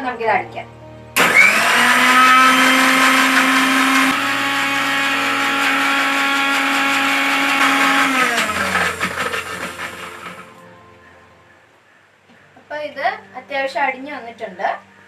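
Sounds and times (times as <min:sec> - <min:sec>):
mixer grinder motor whine: 0:01.2 - 0:10.5.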